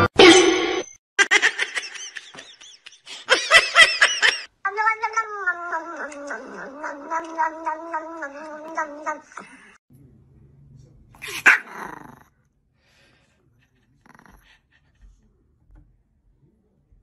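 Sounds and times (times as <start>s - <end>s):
small dog growling: 5.6s - 9.8s, 11.2s - 12.4s, 14.0s - 14.7s
dog barking: 11.2s - 11.7s.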